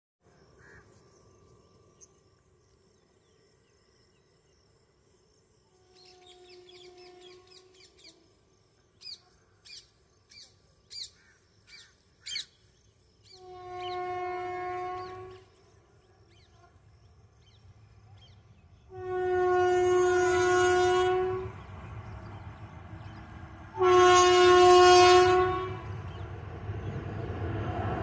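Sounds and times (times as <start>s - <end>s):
distant train horn: 5.7s - 8.4s, 13.2s - 16.8s, 18.8s - 27.4s.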